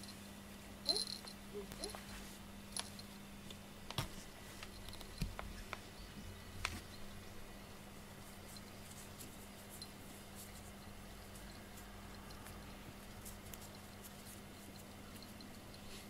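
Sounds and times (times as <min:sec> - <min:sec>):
steady low hum: 0:00.0 - 0:16.0
cat collar bell tinkling: 0:00.8 - 0:02.0.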